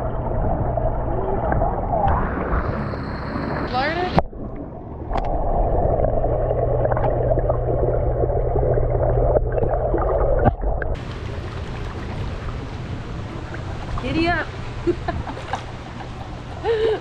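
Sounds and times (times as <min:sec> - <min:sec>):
muffled underwater rumble and hiss: 0:00.0 - 0:04.2, 0:11.0 - 0:17.0
water lapping: 0:11.0 - 0:17.0.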